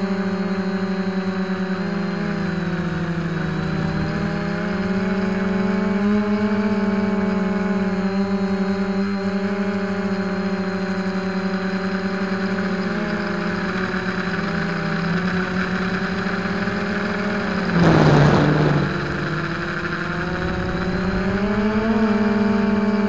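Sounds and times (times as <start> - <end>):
drone motors and propellers whirring: 0.0 - 23.0
rush of air: 17.6 - 20.2.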